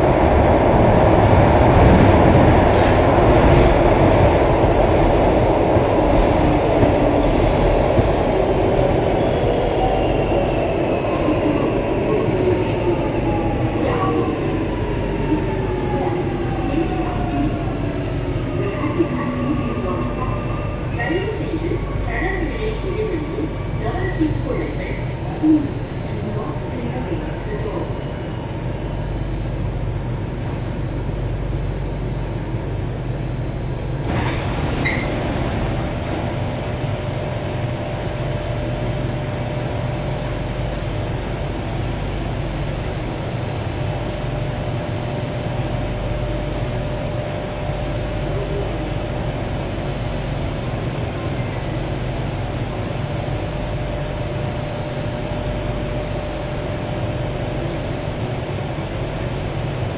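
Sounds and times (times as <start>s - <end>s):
train equipment hum and rumble: 0.0s - 59.9s
sliding doors opening: 34.0s - 36.5s.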